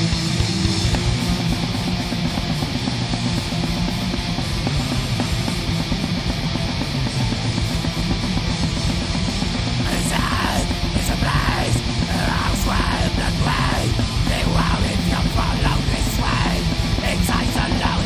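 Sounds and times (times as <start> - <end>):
heavy metal band playing: 0.0 - 18.0
person yelling vocals: 9.9 - 18.0.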